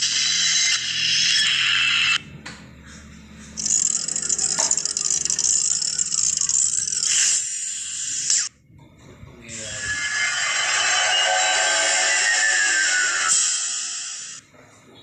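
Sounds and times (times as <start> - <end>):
dry rattling hissing effect: 9.7 - 14.4.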